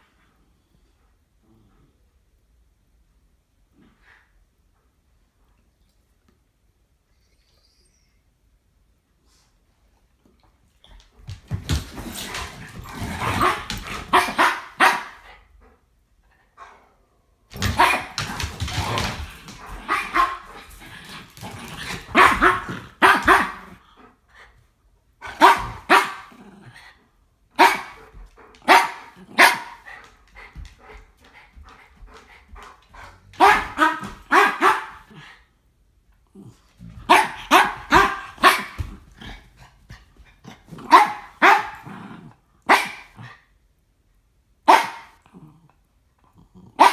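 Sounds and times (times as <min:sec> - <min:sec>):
dog barking: 0:13.4 - 0:15.2, 0:17.6 - 0:18.2, 0:19.8 - 0:20.4, 0:22.1 - 0:23.8, 0:25.3 - 0:26.3, 0:27.6 - 0:28.0, 0:28.6 - 0:29.8, 0:33.4 - 0:35.1, 0:37.1 - 0:38.8, 0:40.8 - 0:41.8, 0:42.7 - 0:43.3, 0:44.6 - 0:45.2.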